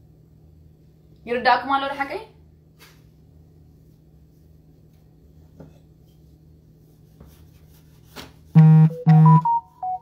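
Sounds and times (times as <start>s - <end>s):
dough rubbed and tapped on board: 4.8s - 8.5s
electronic buzz: 8.6s - 9.6s.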